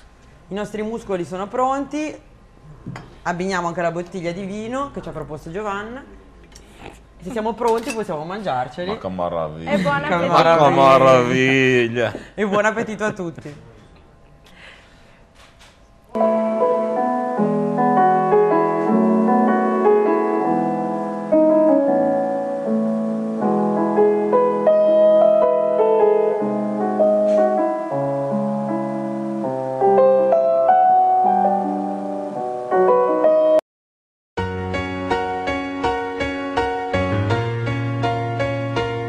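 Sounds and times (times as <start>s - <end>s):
instrumental keyboard music: 16.2s - 33.6s, 34.4s - 39.0s.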